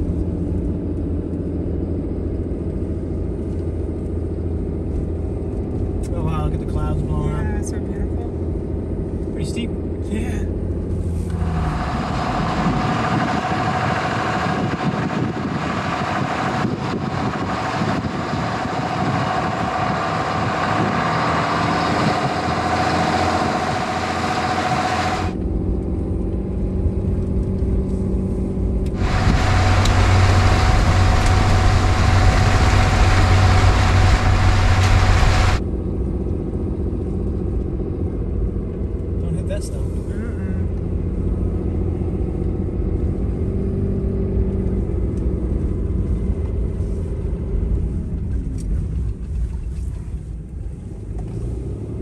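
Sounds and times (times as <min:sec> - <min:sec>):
truck engine and road noise: 0:00.0 - 0:52.0
steady whine: 0:09.2 - 0:26.7, 0:28.6 - 0:37.1.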